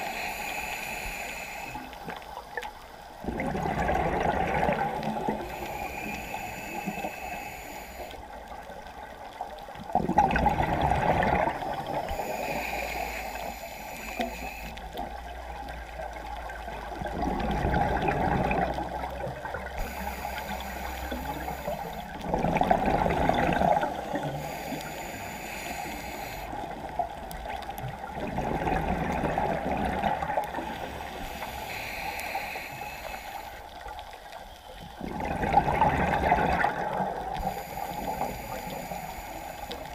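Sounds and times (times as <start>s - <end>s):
regulator hiss on inhale: 0.0s - 3.2s, 5.0s - 9.2s, 11.6s - 15.8s, 19.7s - 22.3s, 23.5s - 27.7s, 30.3s - 35.0s, 37.4s - 39.9s
bubbling exhaust underwater: 0.0s - 39.9s.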